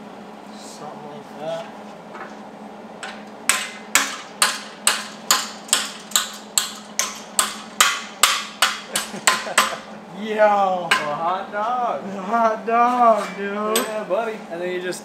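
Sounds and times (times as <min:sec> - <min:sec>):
hammer striking steel tubing: 0:03.5 - 0:09.9.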